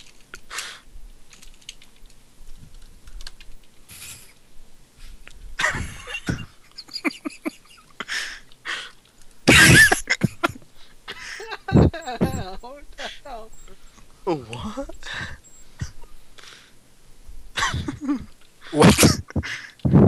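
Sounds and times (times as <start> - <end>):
short hissy bursts: 3.9 - 4.4.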